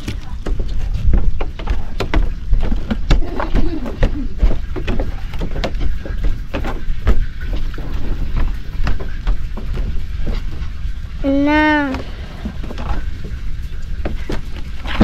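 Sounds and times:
footsteps on bamboo poles: 0:00.0 - 0:11.0, 0:11.6 - 0:15.0.

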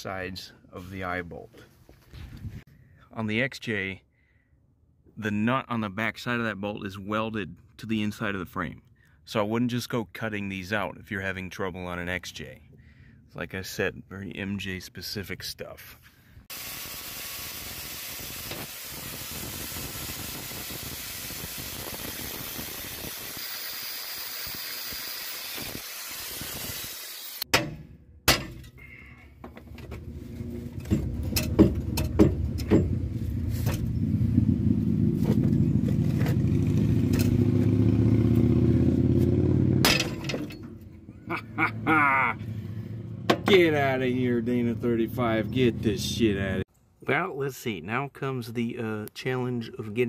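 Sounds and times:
angle grinder cutting metal: 0:20.3 - 0:27.5
metal clanks: 0:27.5 - 0:28.8, 0:30.6 - 0:33.9, 0:39.8 - 0:40.9
low rumble with knocks: 0:29.5 - 0:37.8.

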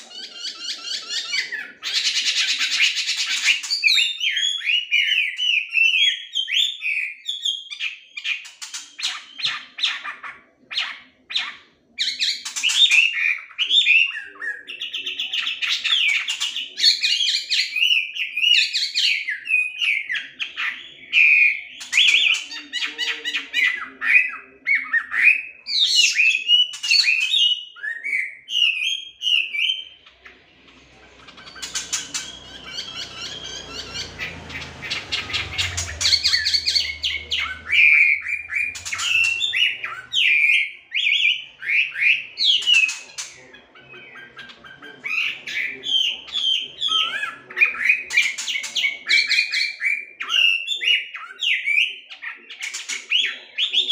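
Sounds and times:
bird harsh chattering: 0:00.0 - 0:07.0, 0:28.6 - 0:51.5
bird singing whistled phrases: 0:31.2 - 0:43.2.

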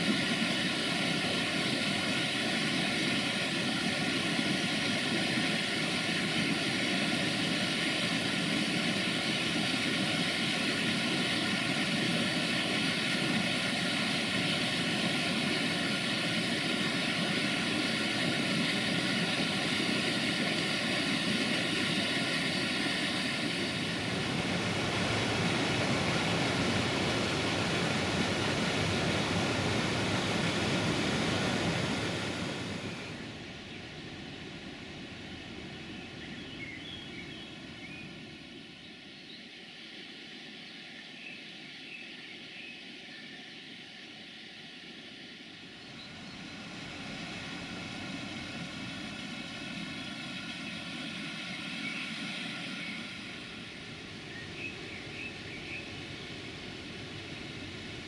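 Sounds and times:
waterfall rushing: 0:00.0 - 0:33.4, 0:46.1 - 0:58.0.

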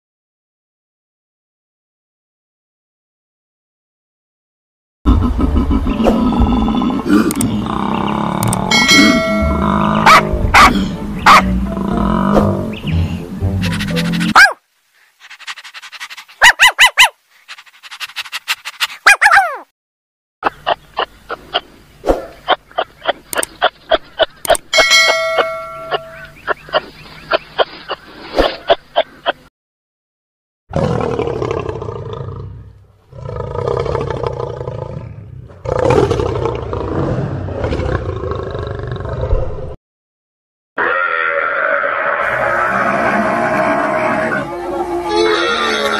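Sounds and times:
lion roaring: 0:06.0 - 0:12.8, 0:30.7 - 0:39.8, 0:40.8 - 0:45.9
puppies yipping: 0:10.1 - 0:11.4, 0:13.6 - 0:14.6, 0:15.2 - 0:19.6.

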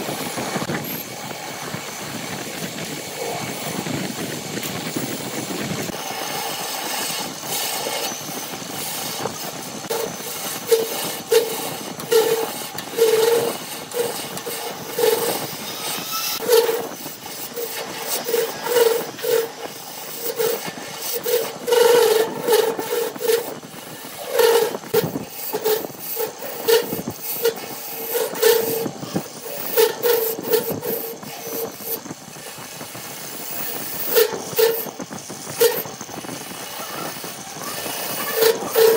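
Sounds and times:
lathe tool cutting wood hiss: 0:00.0 - 0:38.9
tool ticking and scraping wood: 0:05.9 - 0:32.0.

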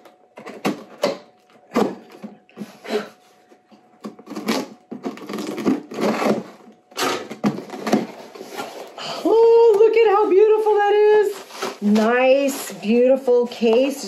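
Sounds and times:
scissors cutting packing tape: 0:04.1 - 0:08.1.

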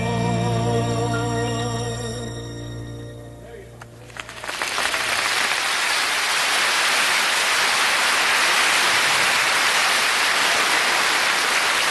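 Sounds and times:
audience applauding: 0:04.0 - 0:11.9.

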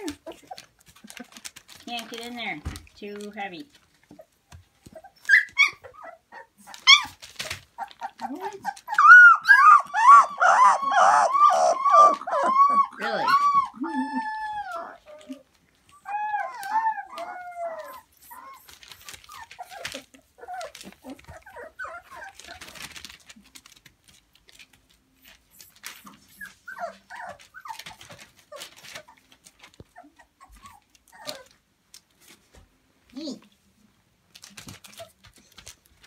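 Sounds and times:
plastic sheeting crinkling: 0:00.0 - 0:09.8, 0:14.8 - 0:36.0
puppies whining and whimpering: 0:04.1 - 0:23.7, 0:25.2 - 0:31.6.

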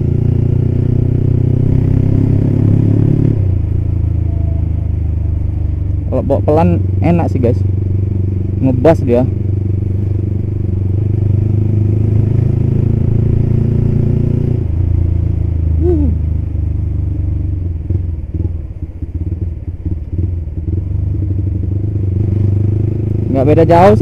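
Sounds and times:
motorcycle engine running: 0:00.0 - 0:24.0
brief falling tone: 0:04.1 - 0:05.8.

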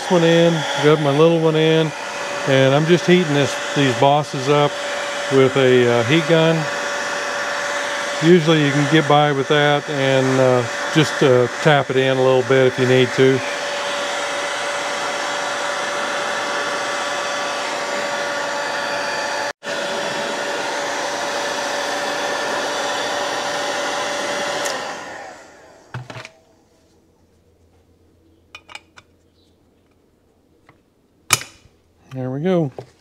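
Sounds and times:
heat gun blowing with whine: 0:00.0 - 0:26.4.

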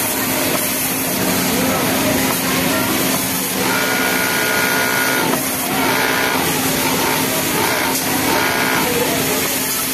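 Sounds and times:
sewing machine stitching: 0:03.0 - 0:09.8.

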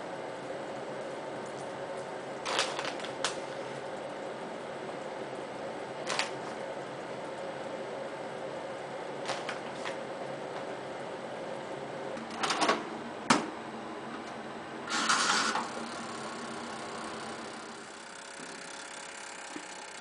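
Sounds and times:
timer dial rasping: 0:16.2 - 0:20.0.

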